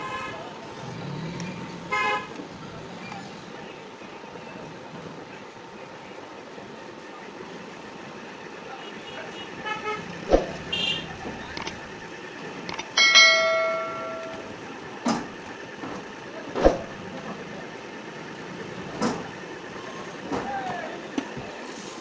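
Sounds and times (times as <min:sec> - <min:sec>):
bell ringing: 0:13.0 - 0:14.6.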